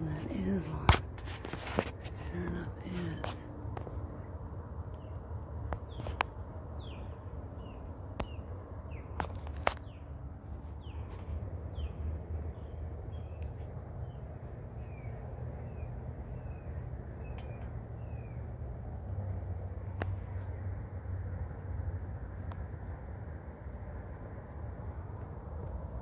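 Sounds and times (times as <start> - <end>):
small birds chirping: 0.0 - 18.8
high insect whine: 0.0 - 26.0.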